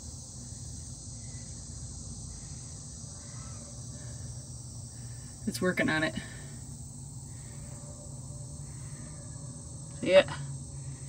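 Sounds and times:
crickets trilling: 0:00.0 - 0:11.0
faint chirps: 0:01.1 - 0:05.5.

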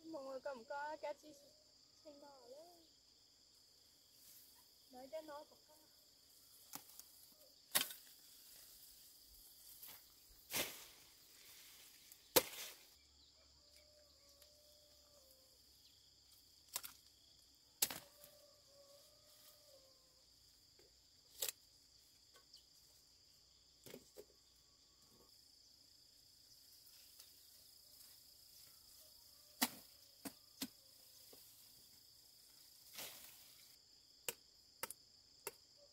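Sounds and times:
high-pitched insect chorus: 0:00.0 - 0:35.9
plant stems snapping: 0:06.6 - 0:07.1, 0:07.7 - 0:08.2, 0:16.7 - 0:17.1.

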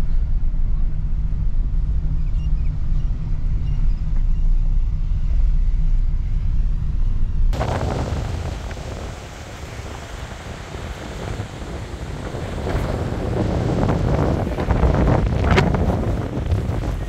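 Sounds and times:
car road and engine rumble: 0:00.0 - 0:17.0
wind rushing: 0:07.5 - 0:17.0
surf: 0:07.6 - 0:17.0.

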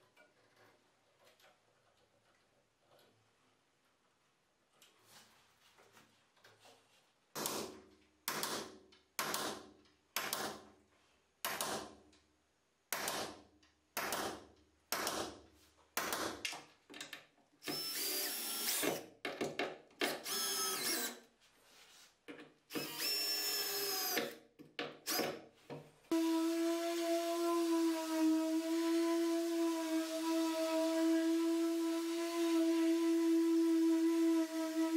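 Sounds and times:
cordless drill whining: 0:17.6 - 0:19.0, 0:20.2 - 0:21.2, 0:22.7 - 0:24.2.

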